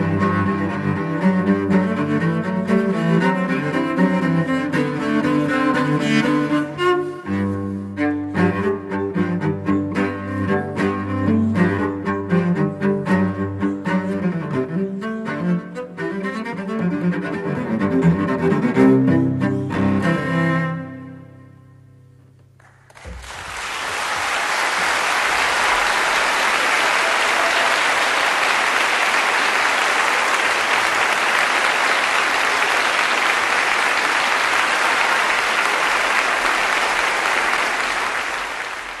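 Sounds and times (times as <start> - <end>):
solo cello notes: 0.0 - 22.5
audience applauding: 22.6 - 39.0.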